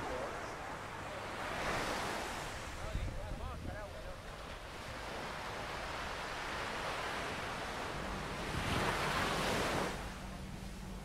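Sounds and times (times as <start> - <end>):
surf washing on beach: 0.0 - 11.0
wind on microphone: 2.2 - 11.0.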